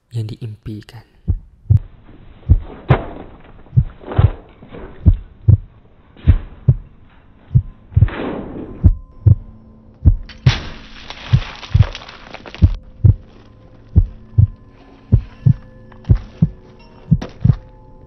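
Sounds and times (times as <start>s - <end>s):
heartbeat double thumps: 1.2s - 1.9s, 2.5s - 2.9s, 3.8s - 4.4s, 5.0s - 5.7s, 6.3s - 8.2s, 8.8s - 10.3s, 12.6s - 13.2s, 14.0s - 17.6s.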